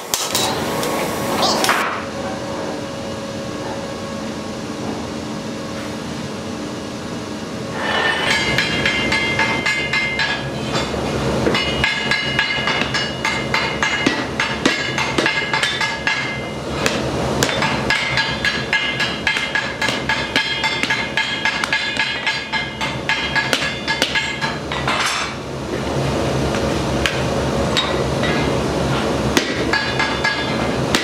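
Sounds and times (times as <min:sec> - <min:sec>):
steady hum: 0:00.0 - 0:31.0
anvil ringing: 0:07.8 - 0:10.5, 0:11.5 - 0:16.5
hammer striking steel on anvil: 0:07.8 - 0:25.4, 0:29.4 - 0:31.0.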